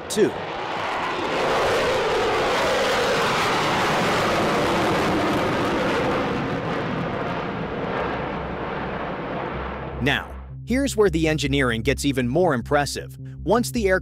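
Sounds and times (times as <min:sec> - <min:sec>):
jet aircraft flying past: 0:00.0 - 0:10.0.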